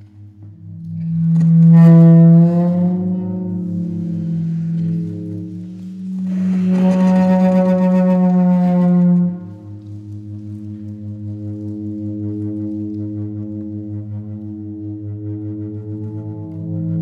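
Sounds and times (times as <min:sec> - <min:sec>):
bowed string held note: 0:00.0 - 0:09.8
low pulsing drone: 0:00.0 - 0:17.0.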